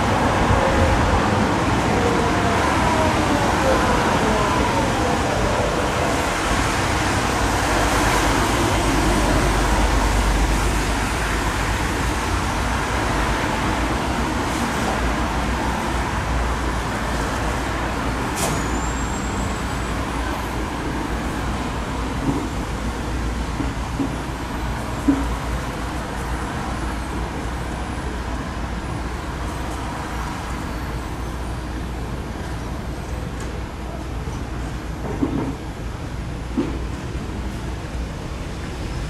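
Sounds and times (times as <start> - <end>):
cars and trams passing: 0.0 - 39.0
short high squeal: 18.4 - 19.7.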